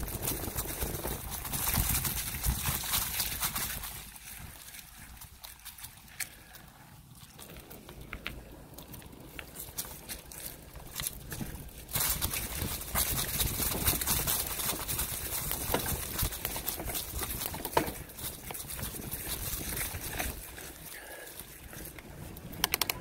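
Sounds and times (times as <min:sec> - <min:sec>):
bicycle tyres rolling over leaves: 0:00.0 - 0:23.0.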